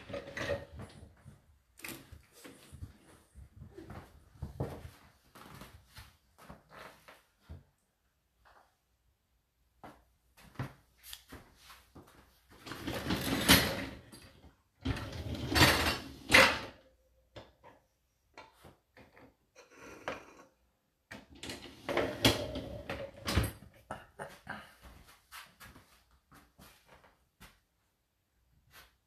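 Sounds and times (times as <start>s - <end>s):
dishwasher racks sliding on rails: 0.0s - 1.1s, 12.6s - 16.8s, 21.2s - 23.6s.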